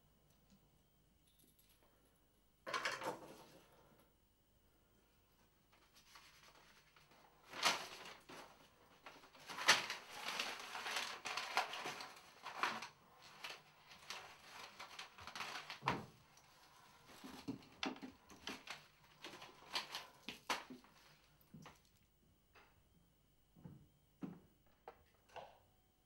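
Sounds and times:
paper rustling: 5.7 - 21.9
paper pages tearing: 9.3 - 16.0.

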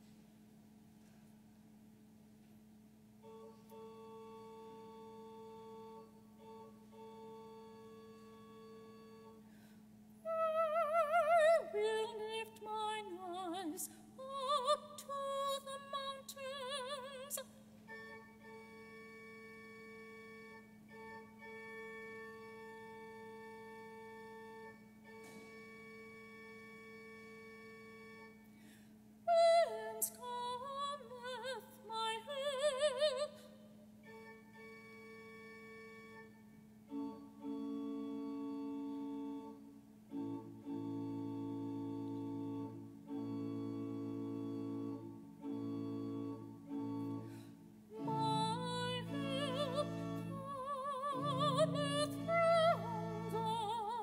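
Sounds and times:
person singing a hymn with vibrato: 10.2 - 24.8, 29.3 - 34.7, 36.9 - 54.0.

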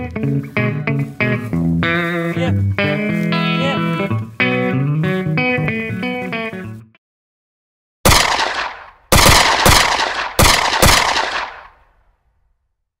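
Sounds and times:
gunshots with echoing tails: 8.1 - 12.1.

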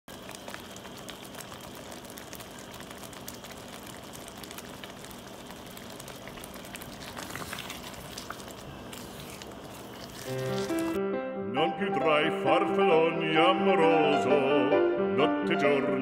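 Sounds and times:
sauce bubbling and popping: 0.1 - 11.0
wooden spoon stirring sauce: 3.2 - 11.0.

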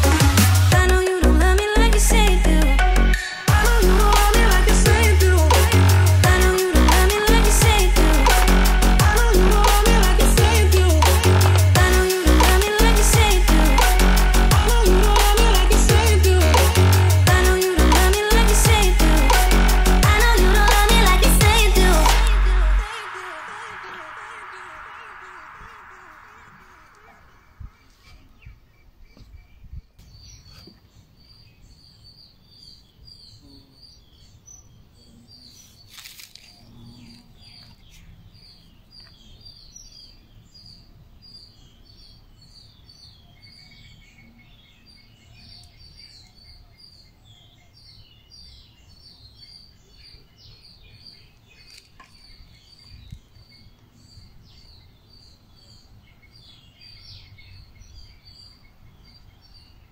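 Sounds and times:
small birds chirping: 20.1 - 59.9.

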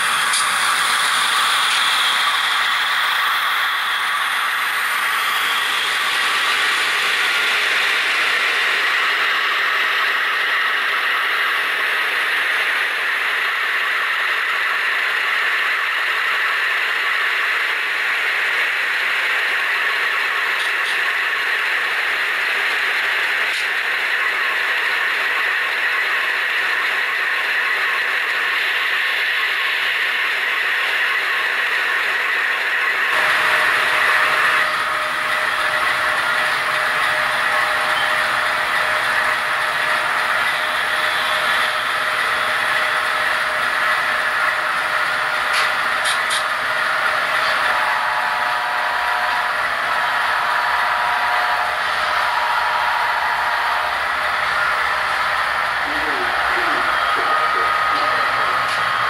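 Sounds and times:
model train rattling whir: 0.0 - 59.0.

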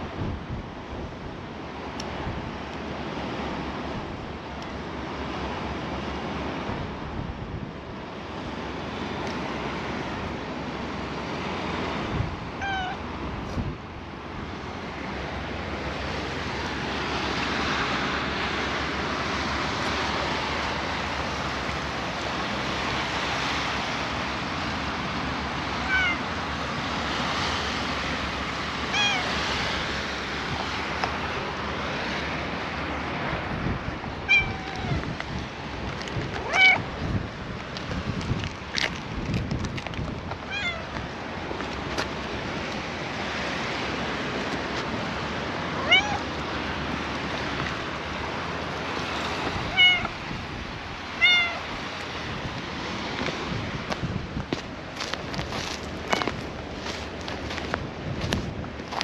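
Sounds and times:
waves lapping: 0.0 - 59.0
wind: 0.0 - 59.0
cat meowing: 12.6 - 13.0, 25.8 - 26.3, 28.9 - 29.4, 34.2 - 35.1, 36.4 - 36.9, 40.5 - 40.9, 45.8 - 46.3, 49.6 - 50.2, 51.1 - 51.8.

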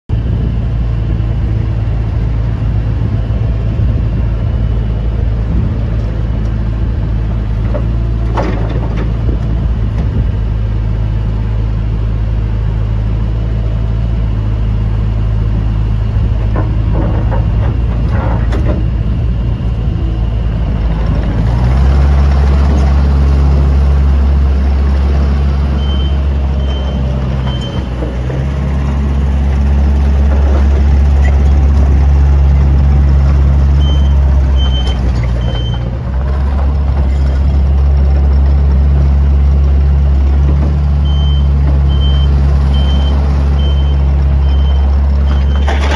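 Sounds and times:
diesel engine running: 0.1 - 45.9
reverse alarm beeping: 25.8 - 27.9, 33.8 - 35.8, 41.0 - 44.8.

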